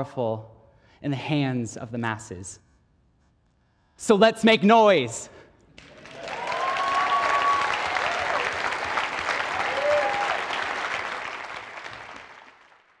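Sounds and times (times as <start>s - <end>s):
audience applauding: 5.8s - 13.0s
crowd whooping: 5.9s - 12.1s.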